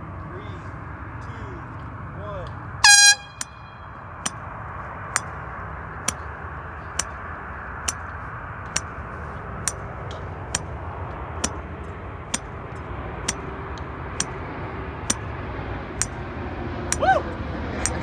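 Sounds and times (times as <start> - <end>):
golf club striking golf balls: 6.0 - 7.2, 7.8 - 9.0, 9.6 - 10.8, 11.4 - 14.4.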